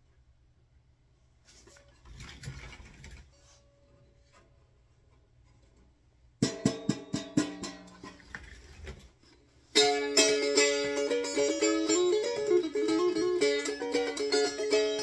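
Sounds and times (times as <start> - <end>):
instrument handling rustle: 1.4 - 4.6, 7.9 - 9.7
banjo strings plucked: 6.4 - 8.4, 9.7 - 15.0.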